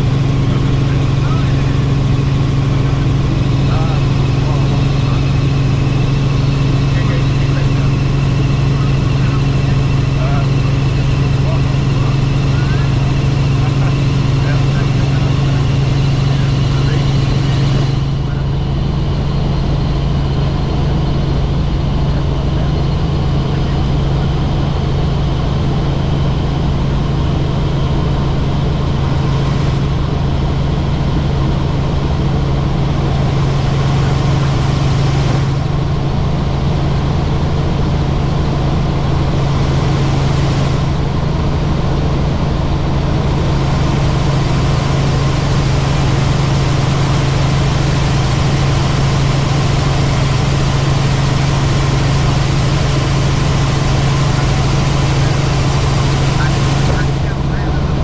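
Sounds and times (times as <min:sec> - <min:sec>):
helicopter rotor and engine drone: 0:00.0 - 0:58.0.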